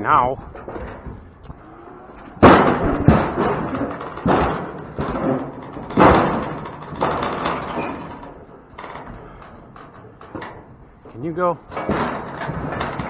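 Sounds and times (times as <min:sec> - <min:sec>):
cattle banging into metal panels: 0:00.4 - 0:11.1, 0:11.7 - 0:13.0
metal rattling: 0:00.4 - 0:13.0.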